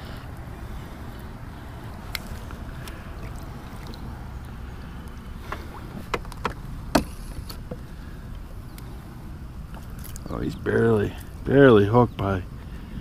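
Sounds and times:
fishing rod handling rumble: 0:01.2 - 0:08.9, 0:09.6 - 0:10.4
sharp clicks and knocks: 0:05.5 - 0:07.8.

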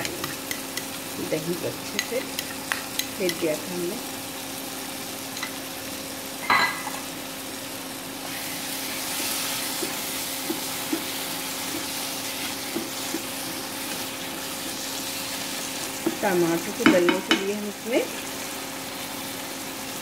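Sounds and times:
spatula stirring: 0:00.0 - 0:01.1, 0:01.8 - 0:03.5, 0:08.2 - 0:17.4
sauce sizzling in a wok: 0:00.0 - 0:20.0.

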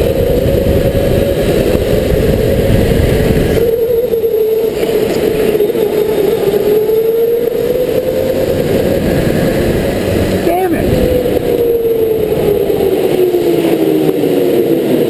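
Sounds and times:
electric go-kart motor whining: 0:00.0 - 0:15.0
low rushing noise: 0:00.0 - 0:15.0.

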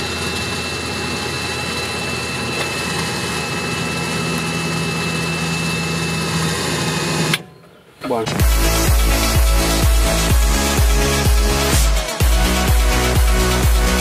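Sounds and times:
thin high whine: 0:00.0 - 0:14.0
buggy engine idling: 0:08.1 - 0:14.0.

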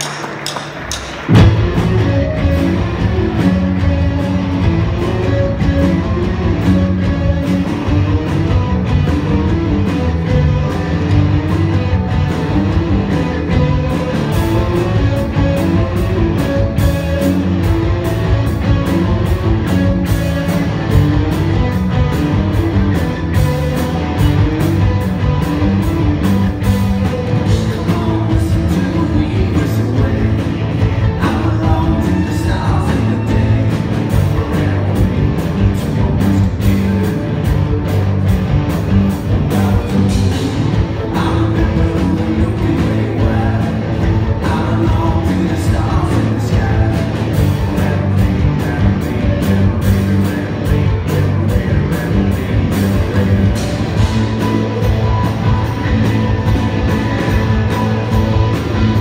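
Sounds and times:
drums: 0:00.0 - 0:59.0
electric guitars: 0:00.0 - 0:59.0
person singing: 0:27.4 - 0:37.4, 0:39.3 - 0:55.2.

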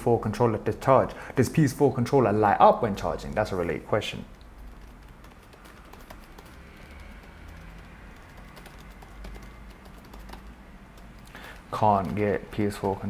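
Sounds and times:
low room hum: 0:00.0 - 0:13.0
keyboard typing clicks: 0:04.3 - 0:12.2.

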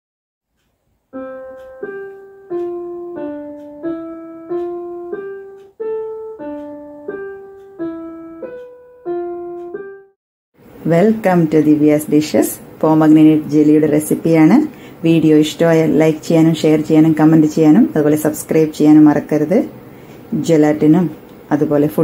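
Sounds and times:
slow keyboard tune: 0:00.5 - 0:10.2.

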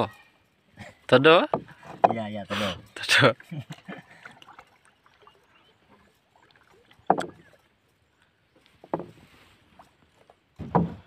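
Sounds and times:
knocks on wooden hull: 0:01.4 - 0:02.3, 0:07.0 - 0:07.4, 0:08.8 - 0:09.2, 0:10.6 - 0:11.0.

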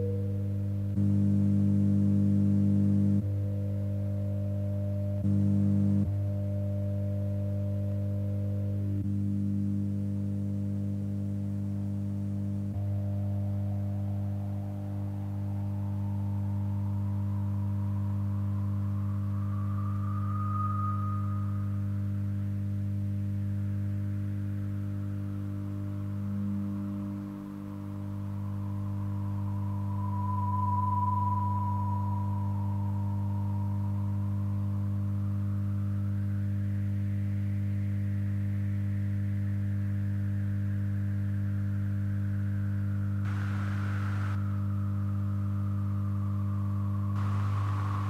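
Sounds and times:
low drone tones: 0:12.7 - 0:39.6, 0:42.5 - 0:48.0
thin rising tone: 0:15.1 - 0:22.6, 0:26.4 - 0:35.7, 0:43.3 - 0:48.0.

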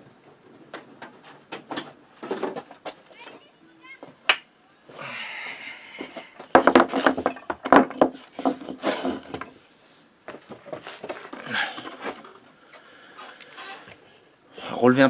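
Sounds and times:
scraping and handling noises: 0:00.3 - 0:04.2, 0:05.9 - 0:09.6, 0:10.2 - 0:14.1
wooden blocks knocking: 0:06.0 - 0:09.5.

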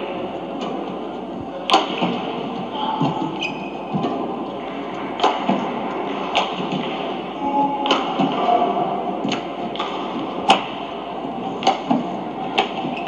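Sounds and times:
arena background noise: 0:00.0 - 0:13.0
rackets hitting shuttlecock: 0:01.6 - 0:02.3, 0:05.1 - 0:07.2, 0:07.8 - 0:08.6, 0:09.2 - 0:10.8, 0:11.5 - 0:13.0.

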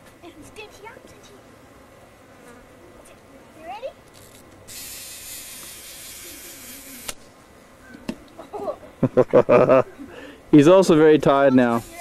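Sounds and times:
high-pitched hiss: 0:03.6 - 0:08.2, 0:09.1 - 0:12.0.

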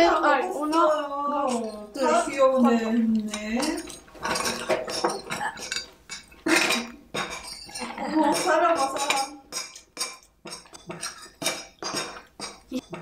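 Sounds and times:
cutlery clinking on plates: 0:00.0 - 0:13.0.

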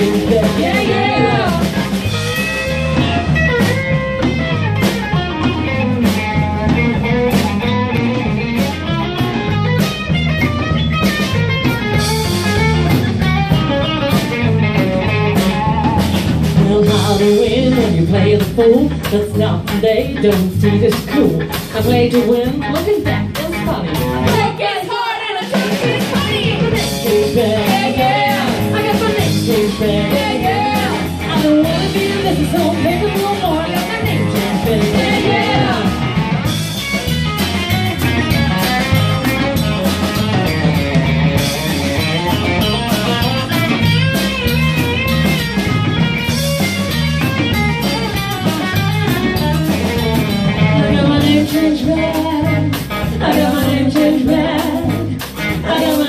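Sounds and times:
women singing: 0:00.0 - 0:02.2, 0:16.6 - 0:36.4, 0:50.6 - 0:56.0
live band playing: 0:00.0 - 0:56.0.

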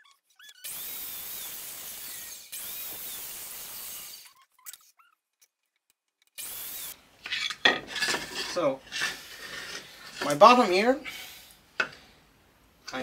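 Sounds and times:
squeaks: 0:00.0 - 0:00.8, 0:04.2 - 0:05.6
mitre saw cutting wood: 0:00.7 - 0:04.4.

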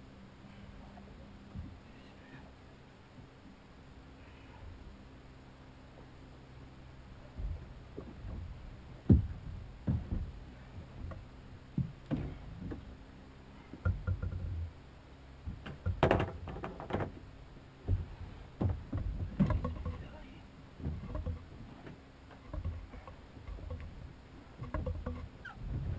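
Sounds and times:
knocks and thumps on boat hull: 0:07.3 - 0:13.0, 0:13.7 - 0:14.7, 0:15.4 - 0:20.2, 0:20.8 - 0:24.0, 0:24.6 - 0:25.9
rustling clatter: 0:15.6 - 0:25.9.

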